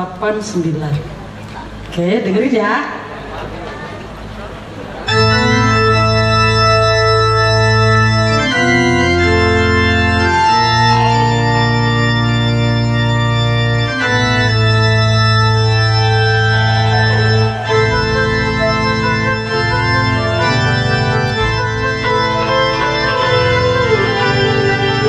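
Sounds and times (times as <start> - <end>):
organ chords on keyboard: 4.8 - 25.0.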